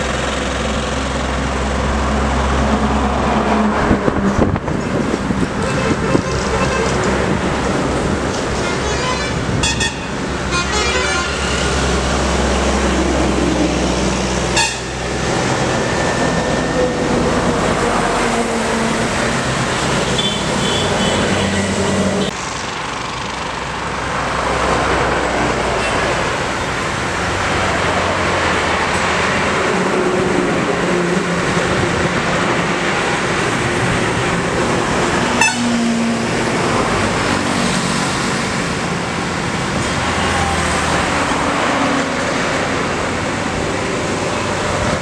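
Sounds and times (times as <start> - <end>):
vehicles passing on highway: 0.0 - 45.0.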